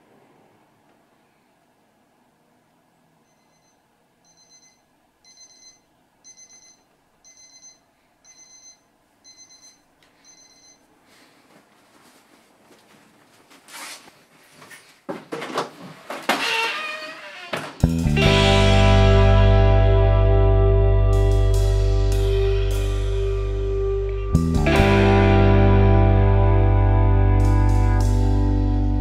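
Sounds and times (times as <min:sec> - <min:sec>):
wristwatch alarm beeping: 0:03.3 - 0:10.8
rustling movement: 0:11.1 - 0:16.3
door clattering and knocking: 0:15.2 - 0:17.9.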